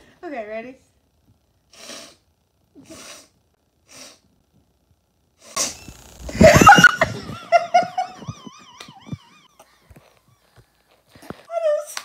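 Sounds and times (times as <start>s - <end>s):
wheezing laughter: 6.3s - 10.2s.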